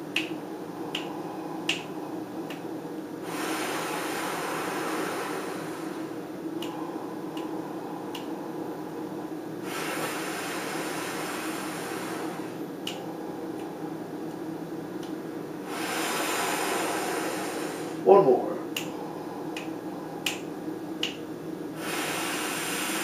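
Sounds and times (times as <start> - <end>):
man inhaling: 3.2 - 8.9, 9.6 - 14.0, 15.6 - 18.0, 21.8 - 23.0.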